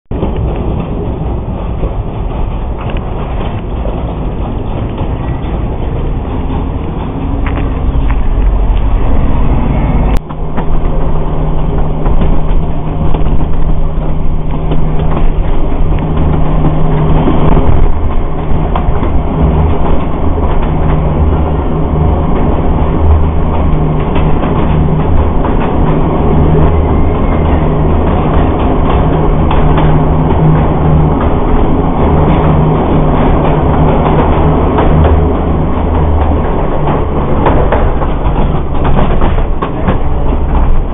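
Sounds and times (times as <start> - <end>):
diesel locomotive engine drone: 0.1 - 40.9
train wheels on rails: 0.1 - 40.9
road vehicle passing: 2.3 - 10.2.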